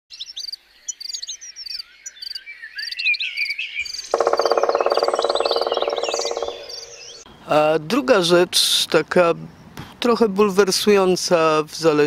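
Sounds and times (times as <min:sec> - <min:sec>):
birds chirping and singing: 0:00.1 - 0:07.7.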